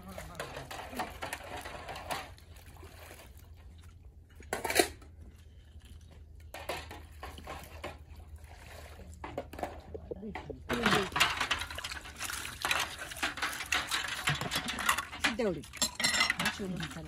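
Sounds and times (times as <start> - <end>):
metal pot and utensils clattering: 0.0 - 2.5, 6.5 - 8.4, 9.2 - 17.0.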